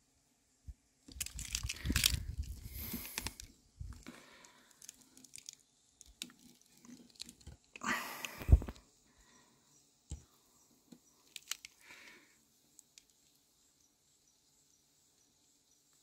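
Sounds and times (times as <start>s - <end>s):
crunching and rustling handling noise: 1.1s - 8.8s, 10.9s - 11.9s.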